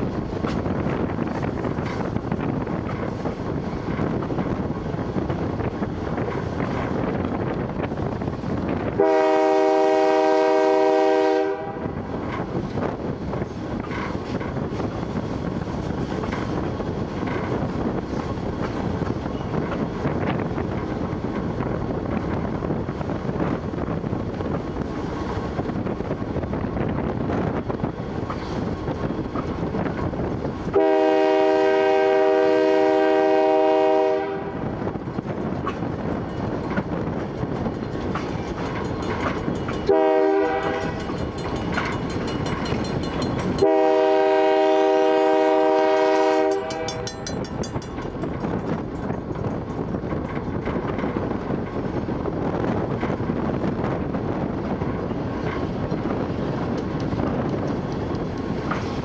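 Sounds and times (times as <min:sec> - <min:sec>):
model train rumbling: 0:00.0 - 0:59.0
train horn: 0:08.9 - 0:12.2, 0:30.7 - 0:34.9, 0:39.9 - 0:41.1, 0:43.5 - 0:47.4.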